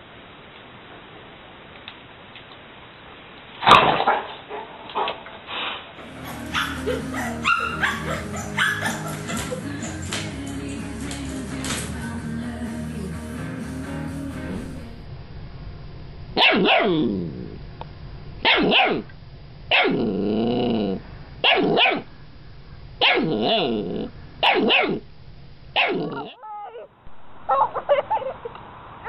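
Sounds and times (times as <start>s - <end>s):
puppy barking: 6.0s - 10.1s, 16.4s - 17.0s, 18.4s - 19.1s, 19.7s - 20.0s, 21.4s - 22.1s, 23.0s - 23.7s, 24.4s - 25.0s, 25.8s - 26.9s, 27.5s - 28.5s.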